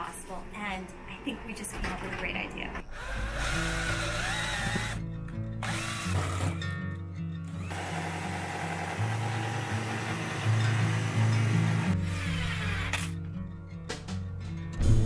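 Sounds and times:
background music: 0.0s - 15.0s
jigsaw cutting a board: 2.9s - 5.0s, 5.6s - 6.6s, 7.6s - 13.1s.

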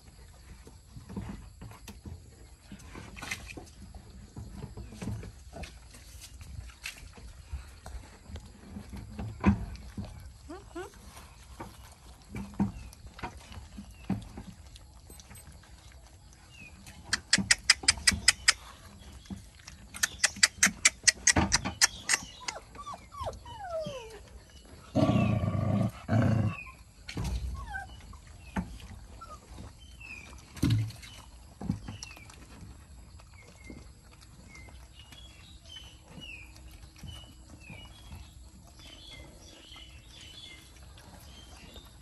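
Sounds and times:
dog growling: 21.9s - 26.8s.

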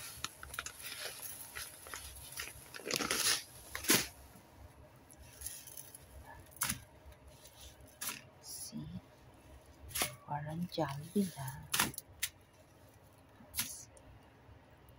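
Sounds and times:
bread crumbs rustling and crunching: 0.0s - 4.3s.

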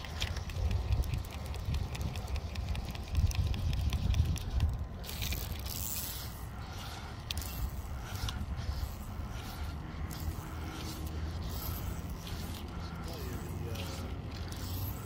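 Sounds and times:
rapid ticking: 0.0s - 15.0s
wind rumble on microphone: 0.0s - 15.0s
fly line swishing: 3.8s - 15.0s.

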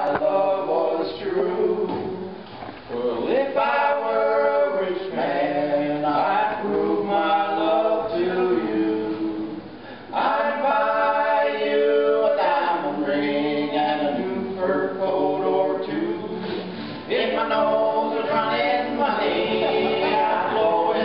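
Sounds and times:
two men singing: 3.1s - 21.0s
acoustic guitars playing: 14.0s - 21.0s.

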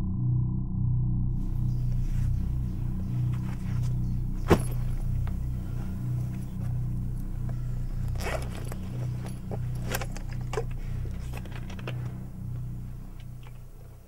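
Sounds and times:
background music hum: 0.0s - 14.0s
backpack unzipped and rummaged: 1.8s - 14.0s
zipper and scraping clicks: 7.5s - 12.7s.

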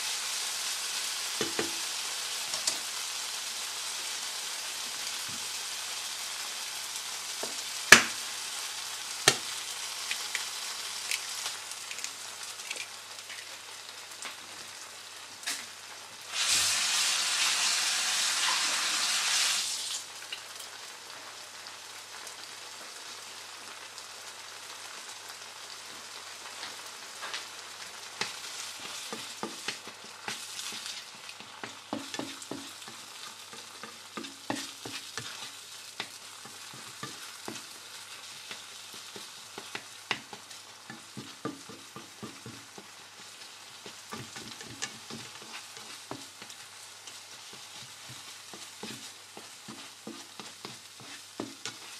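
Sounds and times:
tomatoes sizzling in oil: 0.0s - 51.9s
plastic spatula scraping and stirring: 28.8s - 37.6s, 38.4s - 51.9s.

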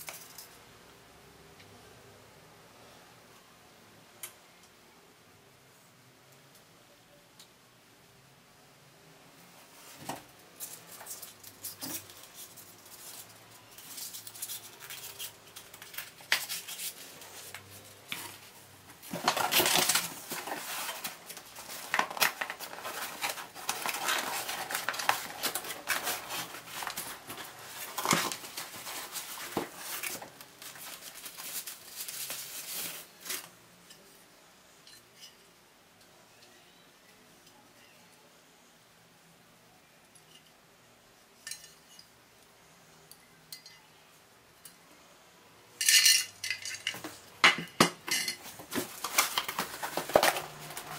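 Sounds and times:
cardboard rustling and scraping: 9.7s - 33.5s, 48.4s - 50.9s.

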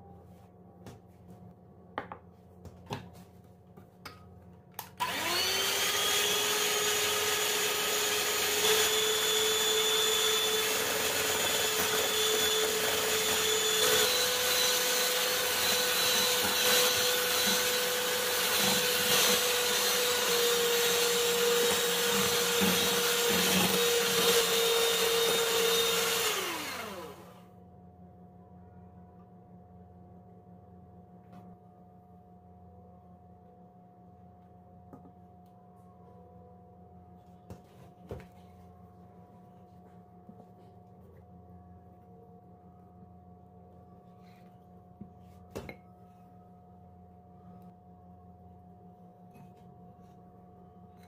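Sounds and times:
electric hand mixer whine: 5.0s - 27.4s.

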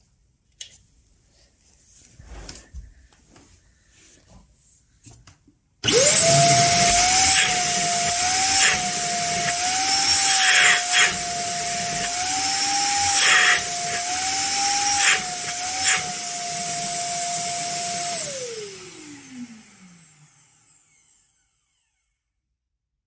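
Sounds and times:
vacuum cleaner running: 5.8s - 22.0s
vacuum motor winding down: 5.8s - 22.0s.

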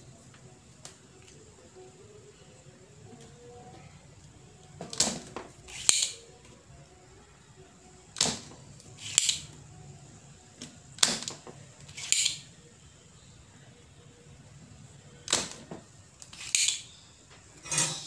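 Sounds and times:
desoldering pump snapping: 4.8s - 6.2s, 8.1s - 9.6s, 10.6s - 12.5s, 15.2s - 18.0s.

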